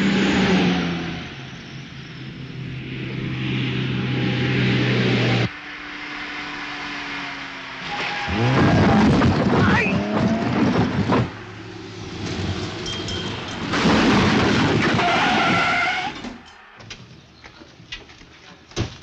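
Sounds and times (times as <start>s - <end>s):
car engine and tyres on gravel: 5.5s - 19.0s
tyres squealing on gravel: 7.8s - 11.4s, 12.6s - 16.6s.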